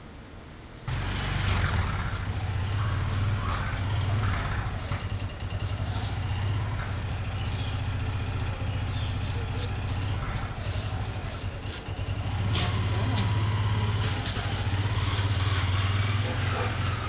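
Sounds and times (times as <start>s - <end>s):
rickshaw engine idling: 0.8s - 17.0s.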